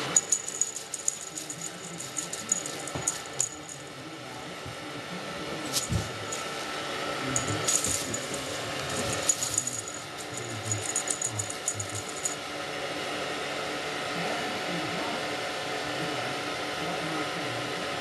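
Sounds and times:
toy streamers rattling and tinkling: 0.0s - 3.9s, 7.4s - 12.4s.

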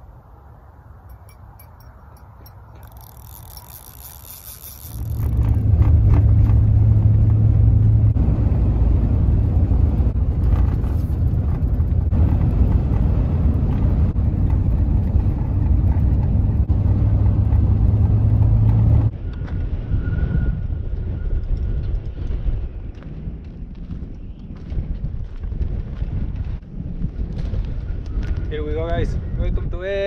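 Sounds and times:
car driving on gravel: 4.8s - 20.0s.

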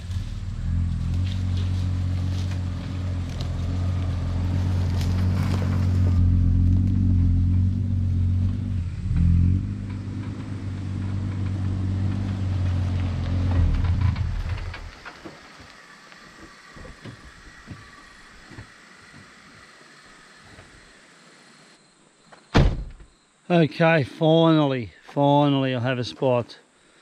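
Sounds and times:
low engine drone: 0.0s - 21.2s.

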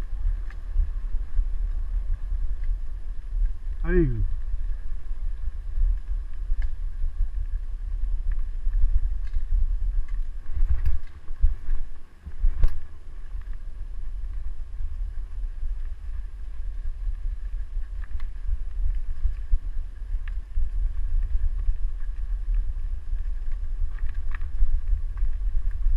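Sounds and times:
wheels rolling over dirt trail: 0.0s - 25.9s
wind buffeting camera: 0.0s - 25.9s.

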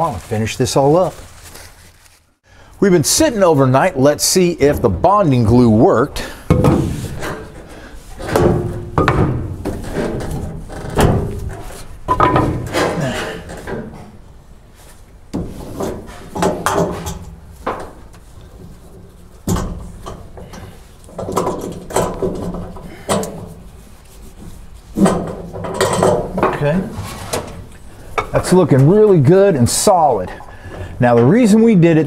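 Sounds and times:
ratchet strap clunking on metal: 15.3s - 28.3s.

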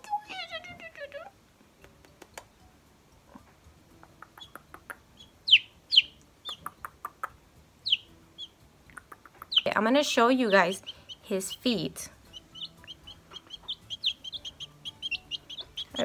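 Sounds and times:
chicks peeping: 3.3s - 16.0s.

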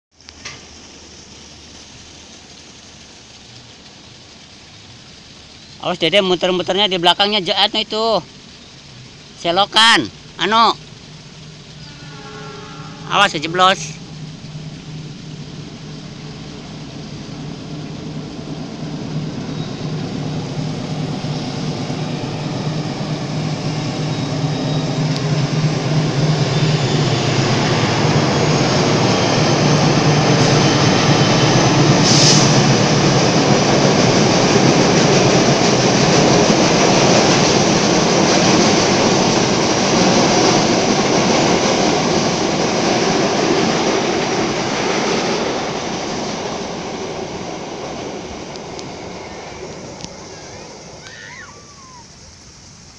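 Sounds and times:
locomotive engine hum: 0.2s - 52.9s
train wheels rumbling on bridge: 10.1s - 52.6s
high squeal: 11.7s - 16.0s, 19.2s - 32.6s, 48.8s - 52.9s.

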